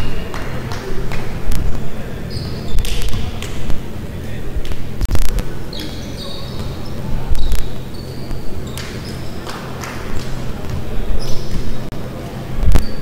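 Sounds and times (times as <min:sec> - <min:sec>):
steady low hum: 0:00.0 - 0:13.0
shoes squeaking on hardwood court: 0:01.5 - 0:03.6, 0:05.6 - 0:11.9.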